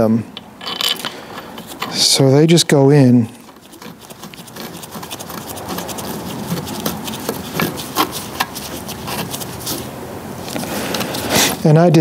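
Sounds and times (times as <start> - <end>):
metal parts clicking and tapping: 0.3 - 2.2
gloved hands rubbing and rustling: 1.5 - 11.8.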